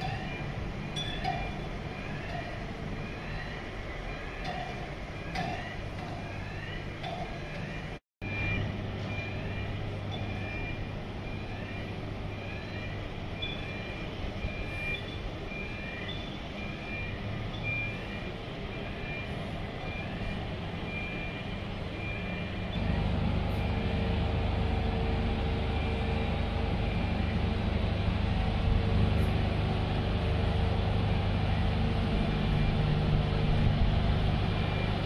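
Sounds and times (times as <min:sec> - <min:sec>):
low hum of ship engine: 0:00.0 - 0:35.0.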